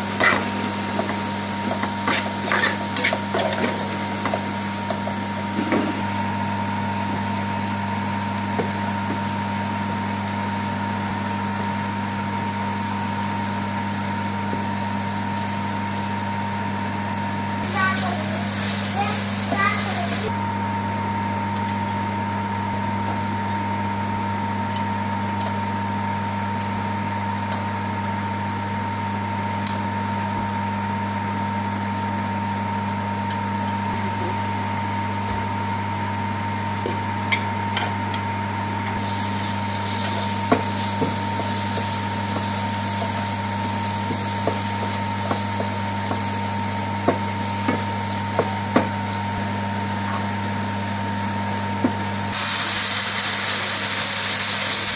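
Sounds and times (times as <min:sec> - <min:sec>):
frying hiss: 0:17.6 - 0:20.3, 0:39.0 - 0:54.9
wooden spoon stirring in frying pan: 0:39.0 - 0:49.0.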